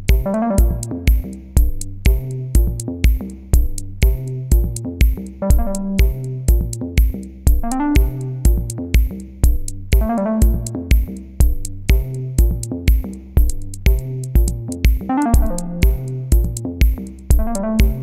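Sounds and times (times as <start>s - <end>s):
electronic music with steady beat: 0.0s - 18.0s.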